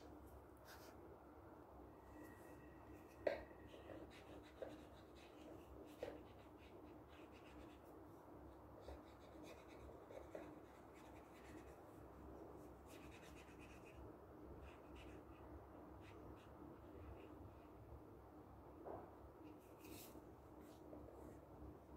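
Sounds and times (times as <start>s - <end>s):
marker rubbing on paper: 3.7s - 7.9s, 8.8s - 11.8s, 12.8s - 14.0s.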